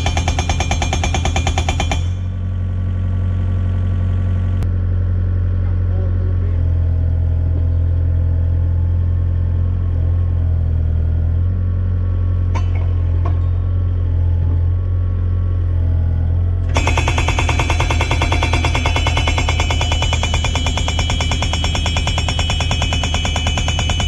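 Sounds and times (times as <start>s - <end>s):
hydraulic rock breaker hammering: 0.0s - 2.3s, 12.5s - 13.7s, 16.6s - 24.0s
diesel engine running: 1.2s - 24.0s.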